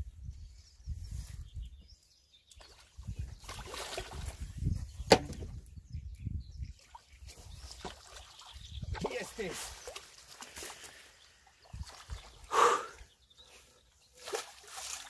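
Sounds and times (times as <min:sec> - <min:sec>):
sharp knock: 0:05.1 - 0:05.4
fish splashing in water: 0:14.2 - 0:15.0.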